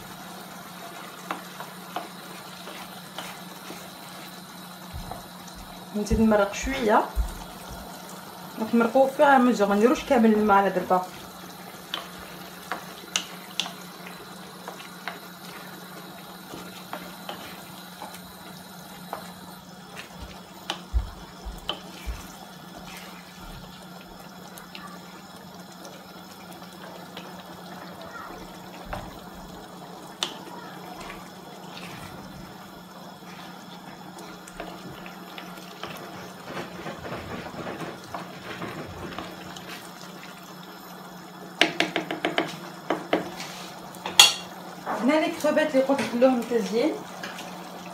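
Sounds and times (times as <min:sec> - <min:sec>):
broth simmering and bubbling: 0:00.0 - 0:47.9
wooden spoon scraping a pan: 0:00.9 - 0:04.4, 0:16.5 - 0:18.2, 0:21.6 - 0:23.6, 0:31.0 - 0:32.3, 0:35.8 - 0:40.0, 0:43.2 - 0:44.5.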